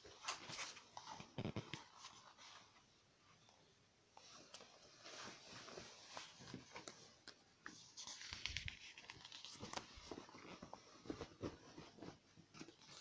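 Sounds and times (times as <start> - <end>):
page turning rustle: 4.5 - 11.9.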